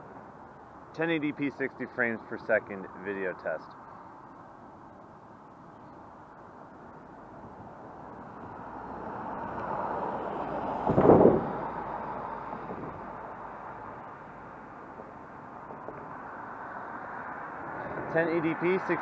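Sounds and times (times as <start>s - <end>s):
traffic hum: 0.0s - 19.0s
car passing close by: 8.0s - 14.2s, 15.6s - 19.0s.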